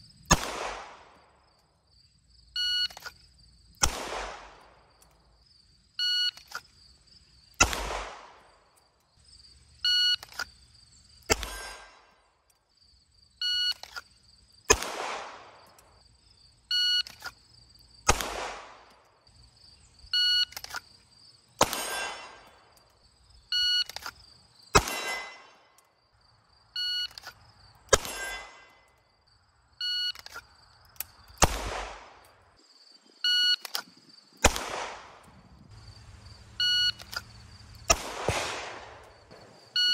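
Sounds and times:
pistol shot with echo: 0.3 - 1.2, 3.8 - 4.8, 7.6 - 8.5, 11.3 - 12.0, 14.7 - 15.7, 18.1 - 18.9, 21.6 - 22.5, 24.8 - 25.6, 31.4 - 32.3, 34.4 - 35.4, 37.9 - 39.6
shot timer beeping: 36.6 - 37.2.

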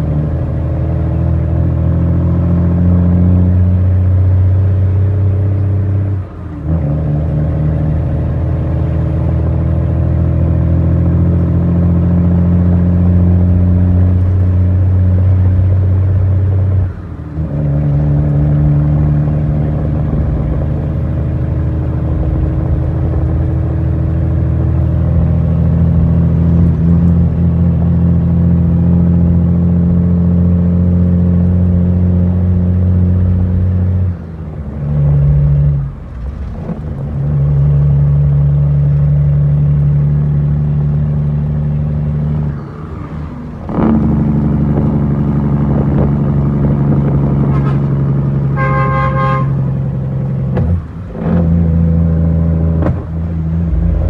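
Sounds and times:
diesel truck engine drone: 0.0 - 54.0
vehicle horn toot: 48.5 - 49.6.

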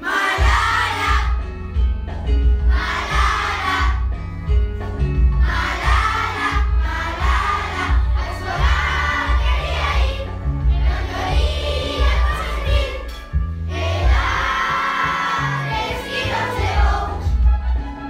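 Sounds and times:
group of voices singing: 0.0 - 1.4, 5.4 - 13.1, 13.7 - 17.4
backing track with bass line: 0.4 - 18.0.

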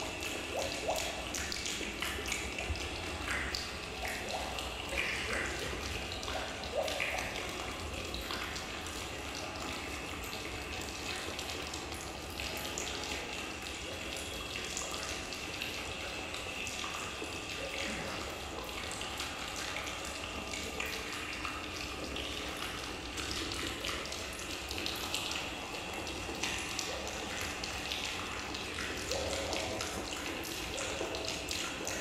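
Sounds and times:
running water: 0.0 - 32.0.

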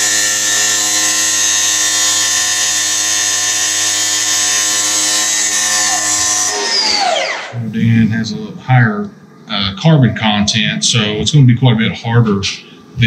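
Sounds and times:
cut-off saw grinding steel: 0.0 - 7.6
saw blade spinning down: 0.0 - 7.6.

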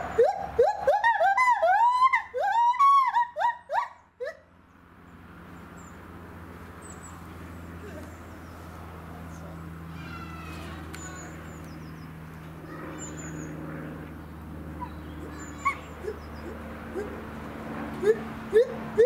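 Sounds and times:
steady low hum: 0.0 - 19.0
gibbon whooping hoots: 0.1 - 4.4, 14.8 - 17.2, 18.0 - 19.0.

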